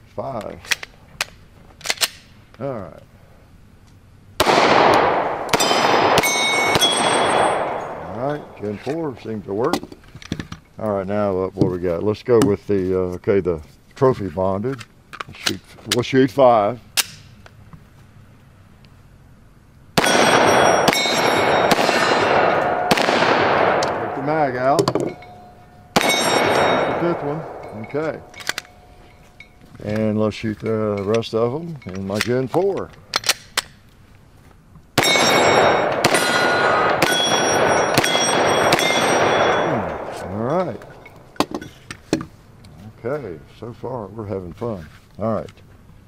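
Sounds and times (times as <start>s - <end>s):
pistol handling clicks: 0.6s - 2.3s, 17.0s - 17.6s, 27.5s - 28.8s, 33.1s - 33.8s
pistol shots: 4.4s - 8.7s, 20.0s - 28.9s, 35.0s - 41.4s
steel targets ringing: 4.7s - 8.8s, 20.0s - 29.7s, 35.0s - 41.8s.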